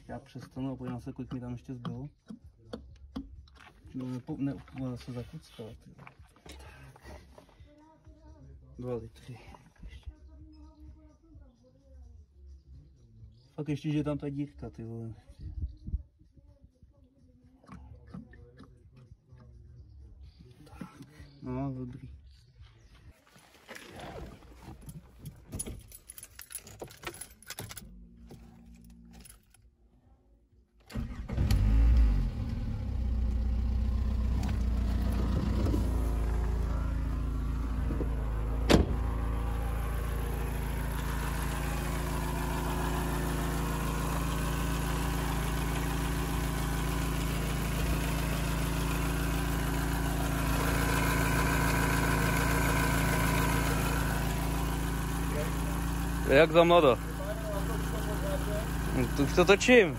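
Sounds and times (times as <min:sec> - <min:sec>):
key rattling: 0:25.1 - 0:27.9
car engine starting and idling: 0:30.8 - 0:59.9.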